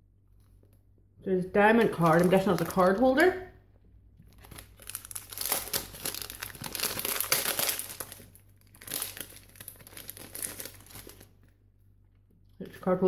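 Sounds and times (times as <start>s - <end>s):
plastic bag crinkling: 1.6s - 3.4s, 4.2s - 11.5s.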